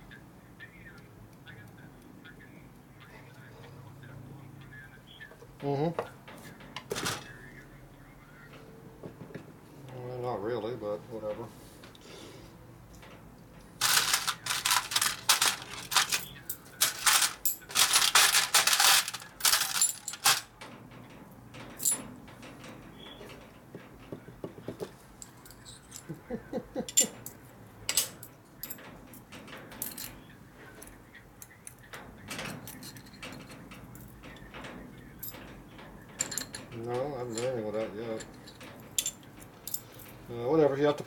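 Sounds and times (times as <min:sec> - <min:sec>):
metal washers clinking: 0:12.9 - 0:23.5, 0:26.8 - 0:30.2, 0:31.4 - 0:40.3.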